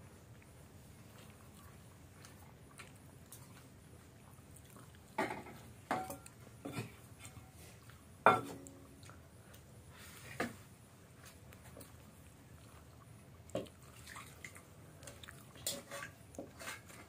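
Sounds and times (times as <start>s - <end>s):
steel plate clinking and scraping: 15.7s - 17.0s.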